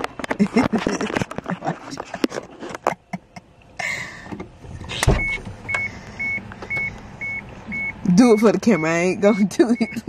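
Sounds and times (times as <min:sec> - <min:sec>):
car door thumping open: 0:04.3 - 0:05.8
door warning chime beeping: 0:05.1 - 0:10.0.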